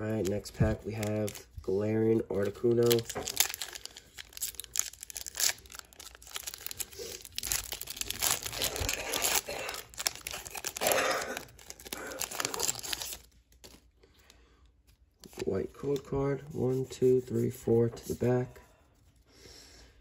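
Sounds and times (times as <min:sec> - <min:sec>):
foil wrapper tearing and crinkling: 0:02.6 - 0:13.8.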